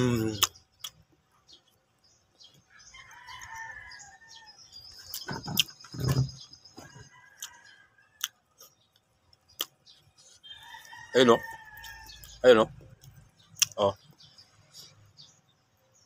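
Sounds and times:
bird chirps: 0:00.0 - 0:16.0
sharp mouth clicks: 0:00.2 - 0:01.0, 0:09.0 - 0:09.8, 0:13.0 - 0:13.8
rooster crowing: 0:02.7 - 0:04.6, 0:10.4 - 0:12.3.

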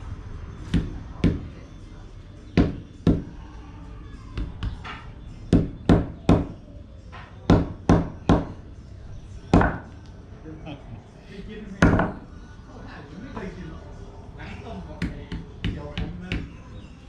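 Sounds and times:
hide pounded on wooden block: 0:09.6 - 0:09.9.

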